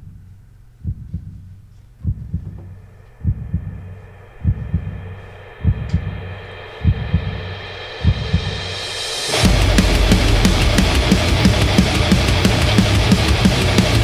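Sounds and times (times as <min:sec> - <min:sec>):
low heartbeat-like thumps: 0:00.8 - 0:14.0
music drone: 0:02.7 - 0:14.0.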